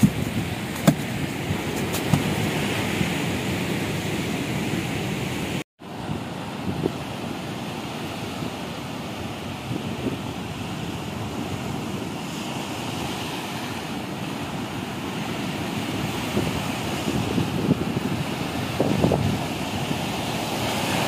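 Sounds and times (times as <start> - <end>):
surf breaking on beach: 0.0 - 21.0
wind rumbling on microphone: 0.0 - 21.0.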